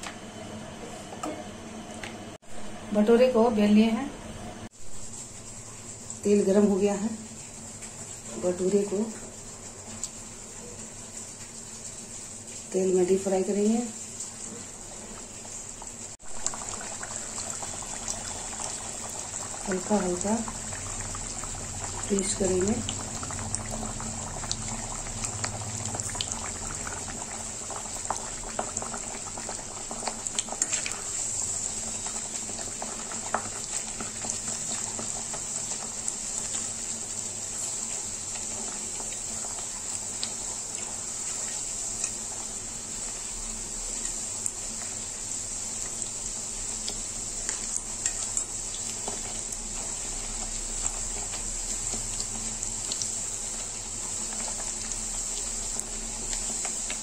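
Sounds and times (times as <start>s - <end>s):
dough deep-frying in oil: 2.2s - 57.0s.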